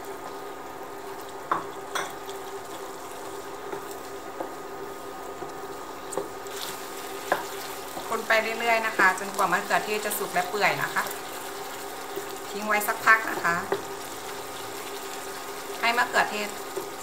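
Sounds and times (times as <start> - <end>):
spatula stirring simmering food: 1.3 - 10.4
spatula knocking on pan: 7.2 - 8.1.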